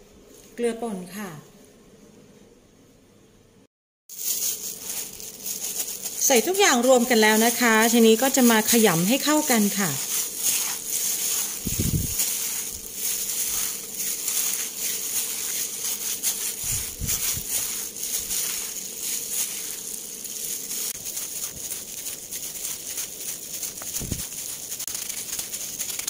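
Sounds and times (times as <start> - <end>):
plastic glove rustling: 4.1 - 26.0
wet squelching of meat: 5.6 - 26.0.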